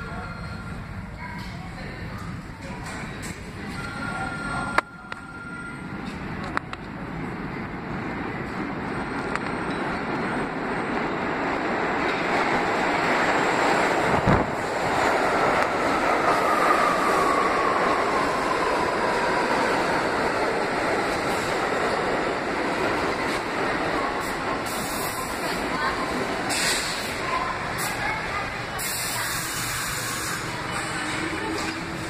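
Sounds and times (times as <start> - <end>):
subway train rumble: 0.0 - 32.0
train brakes whining: 28.7 - 32.0.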